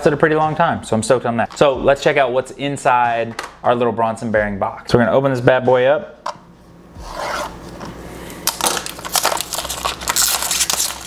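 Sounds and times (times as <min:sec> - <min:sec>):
packaging crinkling: 0:08.4 - 0:11.0.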